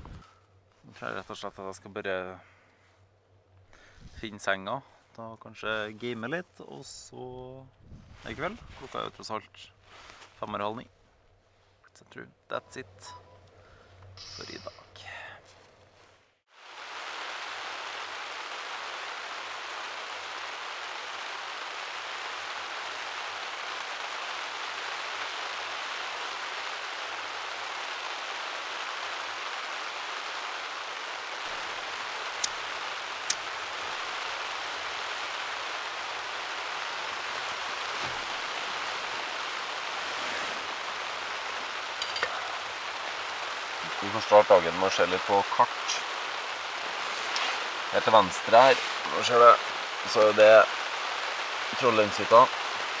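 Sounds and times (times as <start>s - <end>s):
rain on tent fabric: 8.1s - 10.6s, 14.2s - 53.0s.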